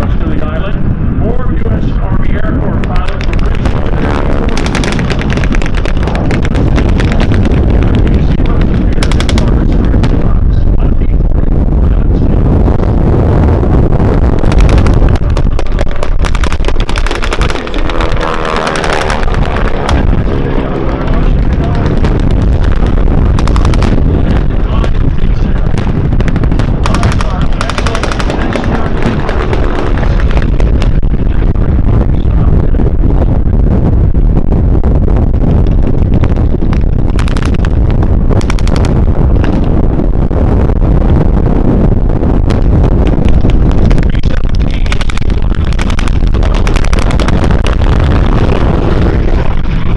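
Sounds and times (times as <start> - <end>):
piston aircraft engines passing: 0.0 - 11.4, 14.4 - 32.8
low rumble: 0.0 - 49.9
wind buffeting microphone: 0.0 - 49.9
rapid cracks: 2.8 - 11.2, 13.6 - 34.2, 35.0 - 49.9.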